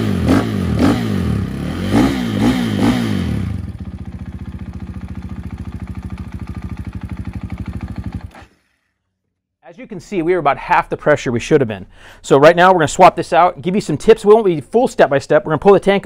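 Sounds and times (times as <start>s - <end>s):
motorcycle engine revving and idling: 0.0s - 8.8s.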